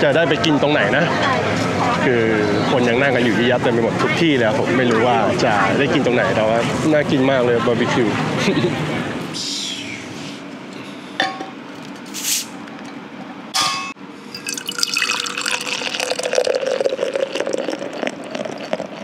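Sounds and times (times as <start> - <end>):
short hissing: 12.1 - 12.6
beer pouring and fizzing: 14.3 - 19.0.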